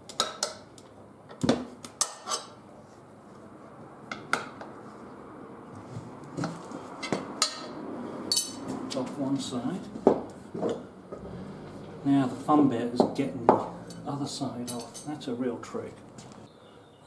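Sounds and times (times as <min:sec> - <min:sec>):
tire levers clinking on rim: 0:13.1 - 0:15.2.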